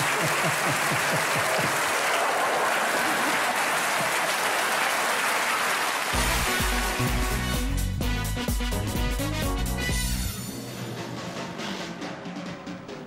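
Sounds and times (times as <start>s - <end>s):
audience applauding: 0.0s - 7.6s
music with heavy bass beat: 6.2s - 10.4s.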